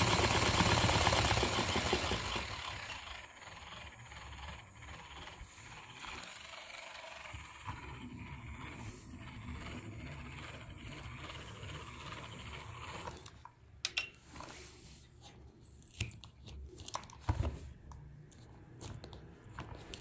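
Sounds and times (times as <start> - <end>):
toy motor and gears whirring: 0.0 - 13.5.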